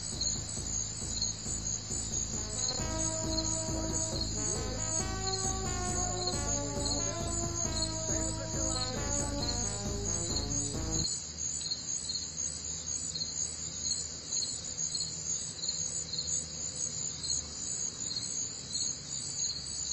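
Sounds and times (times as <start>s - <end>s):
music: 0.0s - 11.1s.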